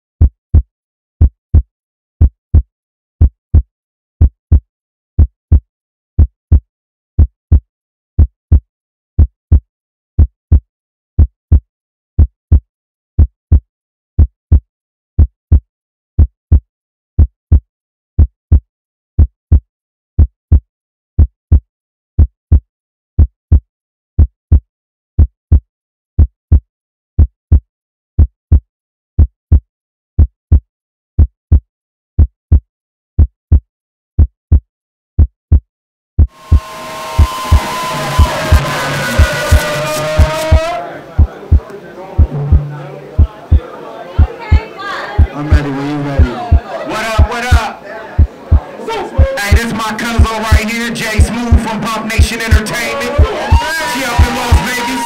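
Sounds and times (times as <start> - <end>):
heartbeat thumps: 0.2 - 4.6, 36.2 - 55.0.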